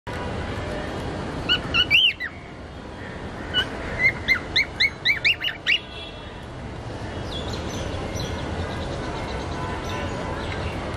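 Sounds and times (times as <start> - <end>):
steady background noise: 0.1 - 10.9
cockatiels chirping: 1.5 - 2.3, 3.5 - 5.8.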